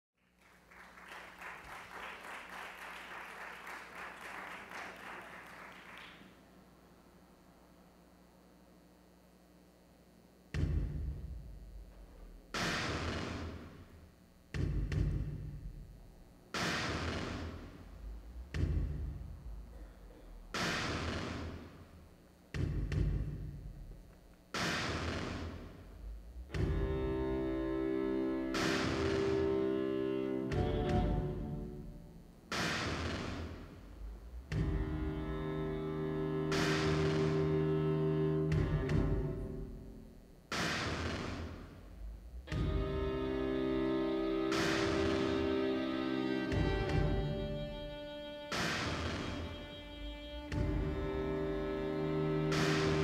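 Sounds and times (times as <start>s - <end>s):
audience applauding: 0.2s - 6.4s
deep percussive hit with hiss: 10.6s - 11.4s.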